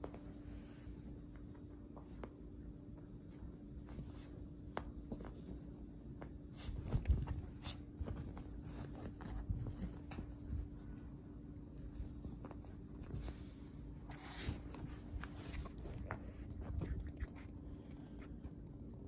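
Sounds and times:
small dog moving and playing: 0:00.0 - 0:18.9
steady low hum: 0:00.0 - 0:19.0.

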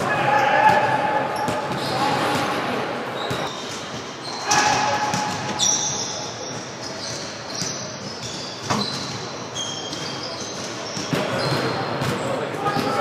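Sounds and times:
shoes squeaking on hardwood: 0:05.4 - 0:11.7.

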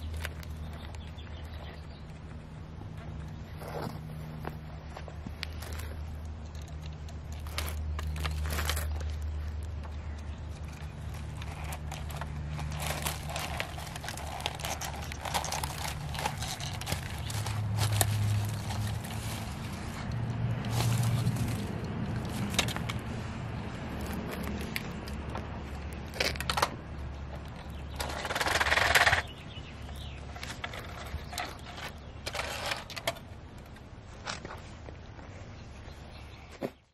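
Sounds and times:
toy truck wheels scraping concrete: 0:05.4 - 0:09.4, 0:10.6 - 0:23.2, 0:27.9 - 0:29.4, 0:30.2 - 0:33.2
paper rustling and crinkling: 0:07.3 - 0:09.6, 0:10.6 - 0:23.2.

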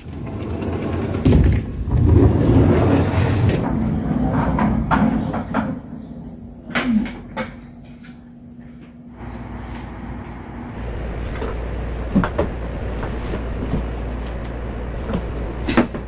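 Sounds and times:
mobility scooter rolling rumble: 0:00.0 - 0:06.5, 0:09.2 - 0:16.0
faint steady hum: 0:03.5 - 0:16.0.

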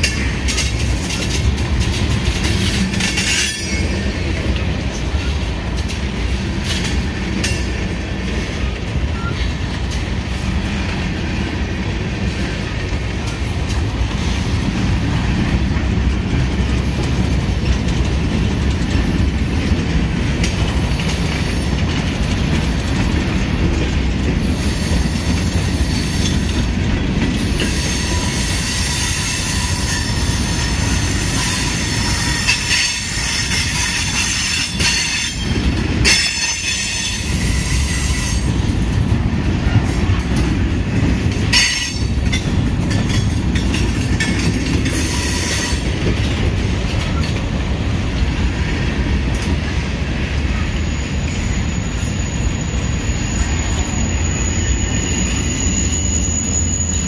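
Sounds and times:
train wheels rumbling on rail: 0:00.0 - 0:57.0
high-pitched wheel squeal: 0:51.4 - 0:57.0.

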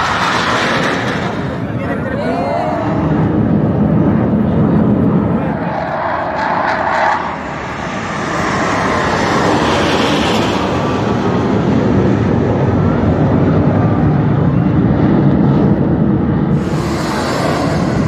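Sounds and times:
jet engines roaring overhead: 0:00.0 - 0:18.0.

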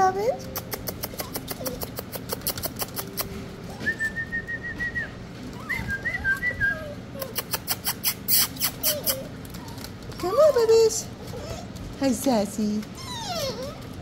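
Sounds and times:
puppies whining: 0:00.0 - 0:14.0
sharp clicks: 0:00.4 - 0:03.4.

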